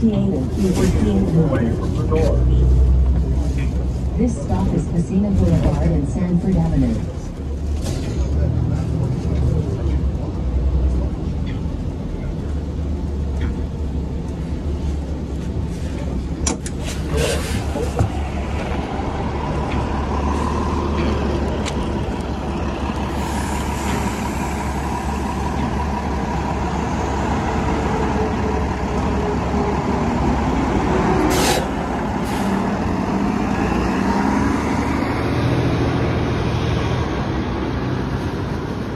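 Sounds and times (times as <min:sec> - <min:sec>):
bus engine rumbling: 0:00.0 - 0:38.9
air brake hiss: 0:31.3 - 0:32.5.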